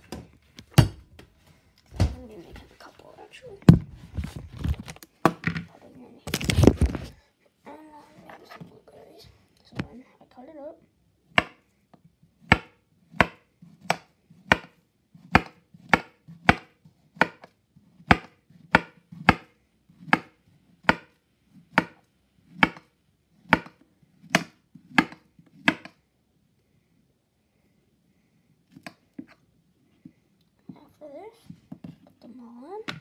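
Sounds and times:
knife chopping banana: 0:11.3 - 0:11.6, 0:12.4 - 0:26.0.

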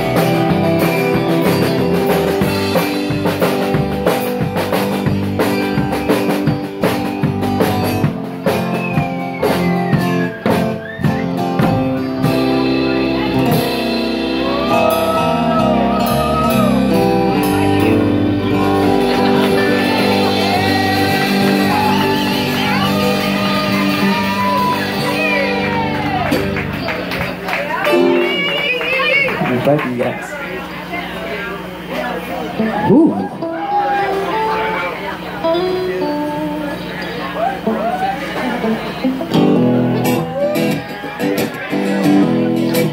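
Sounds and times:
drum kit hits: 0:00.0 - 0:26.7
live rock band playing: 0:00.0 - 0:42.9.

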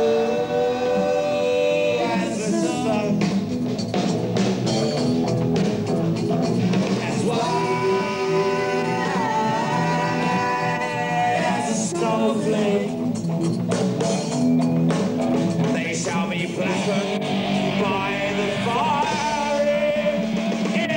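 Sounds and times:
rock band playing: 0:00.0 - 0:20.9
singer holding a long note: 0:07.3 - 0:12.8.

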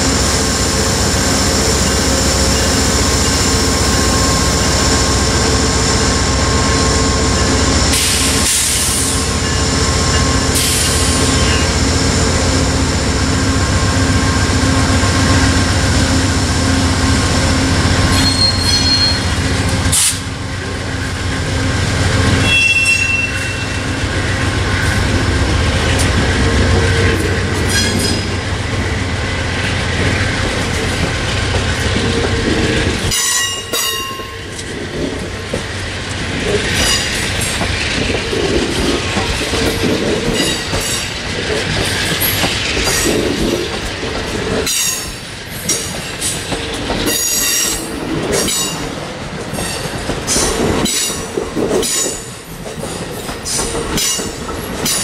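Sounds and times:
diesel locomotive engine throbbing: 0:00.0 - 0:55.0
train wheels rumbling and clattering: 0:00.0 - 0:55.0
high-pitched wheel squeals: 0:18.1 - 0:19.4, 0:22.4 - 0:23.8.

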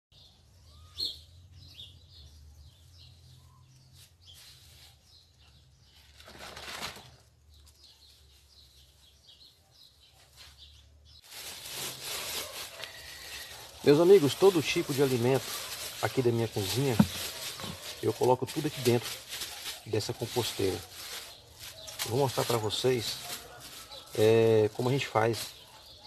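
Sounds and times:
faint bird chirps: 0:00.2 - 0:06.1
plastic bag rustling: 0:05.8 - 0:09.1, 0:10.3 - 0:26.0
scraps pouring into a tub: 0:11.3 - 0:21.3.

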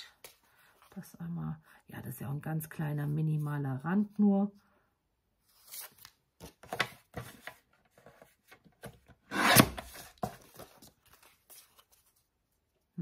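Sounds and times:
paper trimmer blade scraping: 0:09.3 - 0:10.0
paper rustling: 0:09.8 - 0:12.7.

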